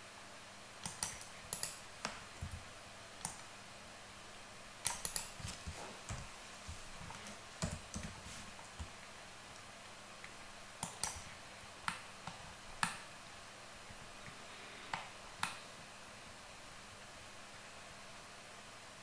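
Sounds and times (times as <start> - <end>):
computer keyboard and mouse clicks: 0.8 - 2.6, 3.2 - 3.5, 4.8 - 6.3, 7.0 - 8.9, 10.2 - 13.1, 14.3 - 15.6.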